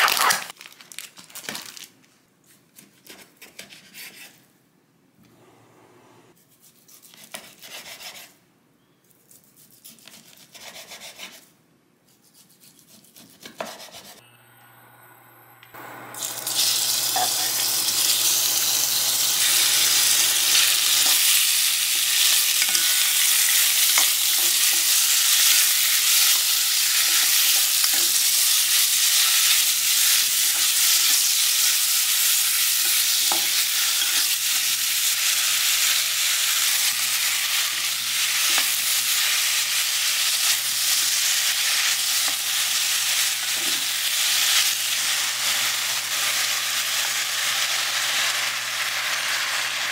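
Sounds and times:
meat sizzling in hot oil: 0:15.9 - 0:49.9.

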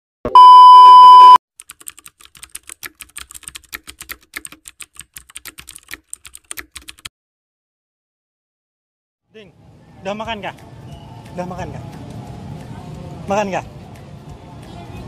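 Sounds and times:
test-tone beep: 0:00.3 - 0:01.4
keyboard typing clicks: 0:01.6 - 0:07.1.

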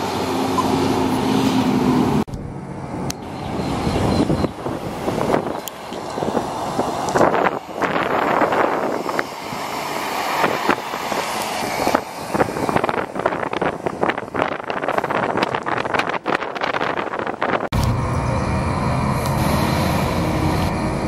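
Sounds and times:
bus engine driving past: 0:00.0 - 0:15.3, 0:17.7 - 0:21.0
wind buffeting microphone: 0:02.3 - 0:21.0.

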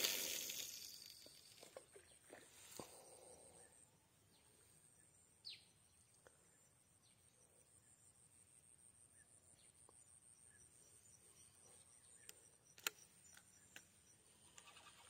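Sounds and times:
high-pitched insect chorus: 0:00.0 - 0:01.7
sharp clicks: 0:12.2 - 0:14.7.

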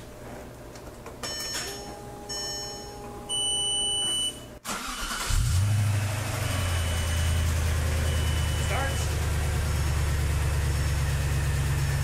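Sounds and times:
electronic warning beeps: 0:01.3 - 0:04.5, 0:06.6 - 0:09.1
engine cranking: 0:04.7 - 0:05.6
car engine idling: 0:04.8 - 0:12.0.

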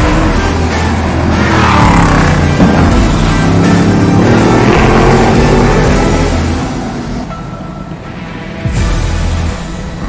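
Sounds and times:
race car engine at high revs: 0:00.0 - 0:07.3.

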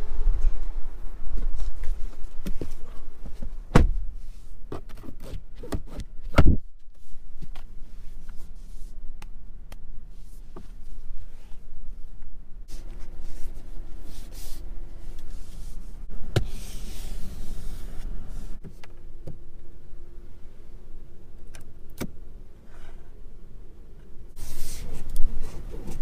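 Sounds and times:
faint steady hum: 0:00.0 - 0:26.0
clicks and rustling of upholstery: 0:01.4 - 0:04.1, 0:24.6 - 0:26.0.

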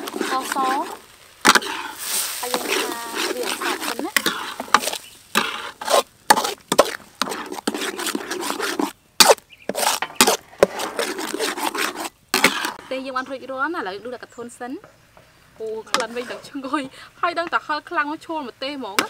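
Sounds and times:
metal spoon scraping paste in wok: 0:00.0 - 0:12.9, 0:15.9 - 0:16.6.

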